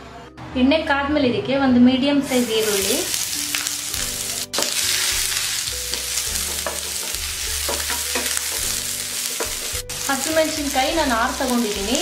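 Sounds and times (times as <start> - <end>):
onion sizzling in hot oil: 2.2 - 12.0
utensil clicking against pan: 5.9 - 8.8.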